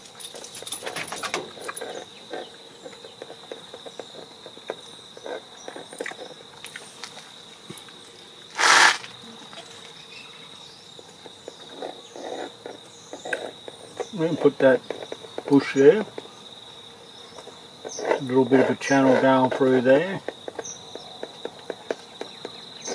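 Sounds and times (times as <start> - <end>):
insect droning: 0.0 - 22.9
loud brief hiss: 8.6 - 9.1.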